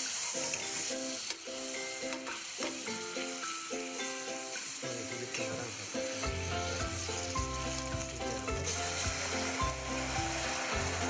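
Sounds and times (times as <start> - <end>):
vegetables sizzling in a pan: 0.0 - 11.0
background music with bass line: 6.2 - 11.0.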